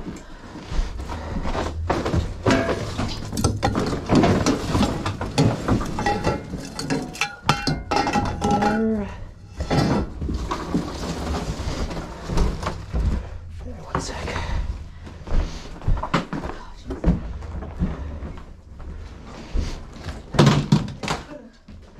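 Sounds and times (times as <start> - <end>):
junk clattering and clinking: 1.8 - 13.3.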